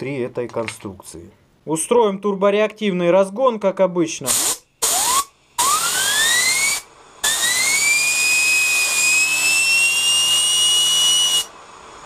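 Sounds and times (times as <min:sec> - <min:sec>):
compressed air blow gun hissing: 0:04.3 - 0:09.5
rotor whine rising in pitch: 0:04.8 - 0:12.0.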